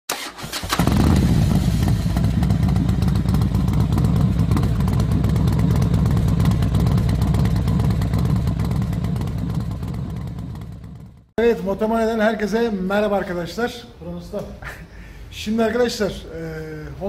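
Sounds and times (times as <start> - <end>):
motorcycle engine idling: 0.8 - 11.3.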